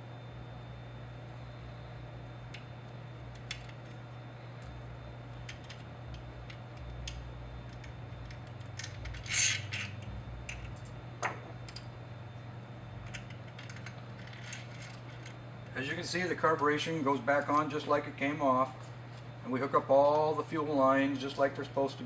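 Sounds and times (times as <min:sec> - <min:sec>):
steady low hum: 0:00.0 - 0:22.0
small parts clicking and rattling: 0:05.4 - 0:10.9, 0:13.0 - 0:15.4.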